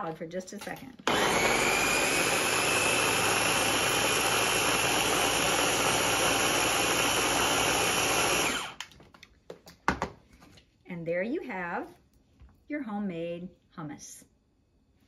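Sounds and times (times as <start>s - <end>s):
food chopper motor whirring: 1.0s - 8.9s.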